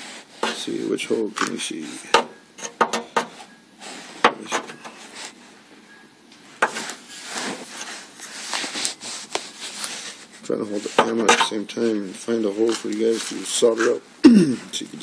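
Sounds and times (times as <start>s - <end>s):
sharp clicks and knocks: 1.4s - 3.3s.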